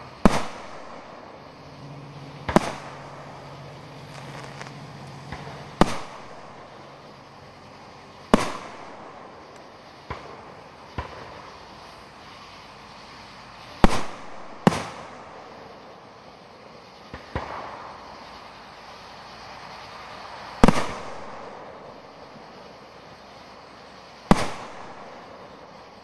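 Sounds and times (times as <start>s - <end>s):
firework booms: 0.0s - 12.0s, 13.8s - 16.0s, 17.0s - 18.4s, 20.6s - 22.4s, 24.2s - 25.8s.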